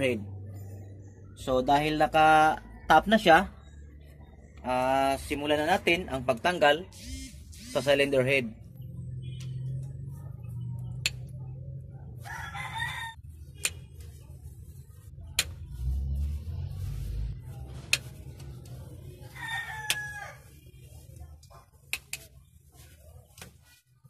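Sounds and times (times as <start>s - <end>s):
rooster crowing: 12.2s - 13.2s, 19.3s - 20.5s.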